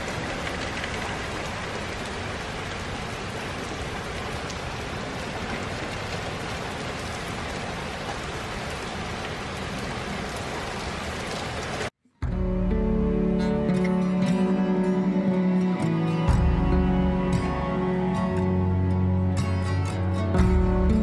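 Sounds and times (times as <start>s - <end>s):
raindrop ticks: 0.0s - 11.9s
steady rain hiss: 0.0s - 21.0s.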